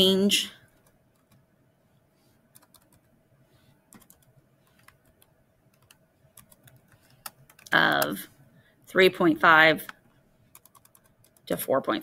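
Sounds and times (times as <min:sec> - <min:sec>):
keyboard typing: 0:00.7 - 0:01.5, 0:02.5 - 0:03.2, 0:03.9 - 0:08.2, 0:09.8 - 0:11.5.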